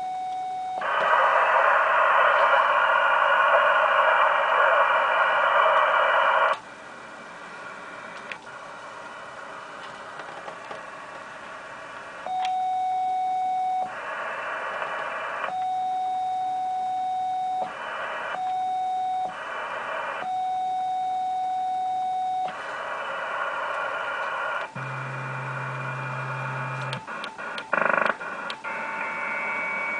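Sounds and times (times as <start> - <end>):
radio receiver hiss: 0.8 - 12.3, 13.8 - 15.6, 17.6 - 18.5, 19.3 - 20.4, 22.5 - 29.9.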